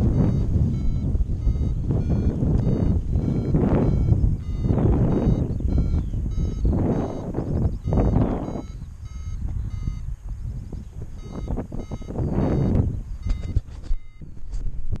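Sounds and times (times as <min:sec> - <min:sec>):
variometer beeping: 0:00.0 - 0:14.6
wind buffeting microphone: 0:00.0 - 0:15.0.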